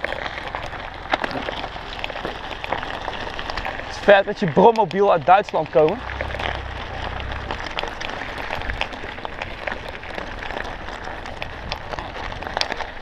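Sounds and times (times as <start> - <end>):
bike tyres crunching on gravel: 0.0 - 13.0.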